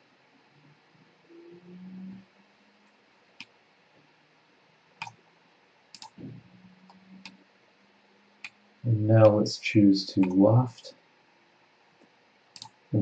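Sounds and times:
computer mouse clicking: 5.0s - 5.2s, 5.9s - 6.3s, 12.0s - 12.8s.

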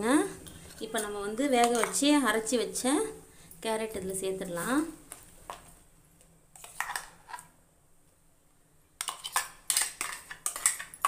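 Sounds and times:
spoon scraping pan and jar: 6.6s - 7.5s, 9.0s - 11.0s.

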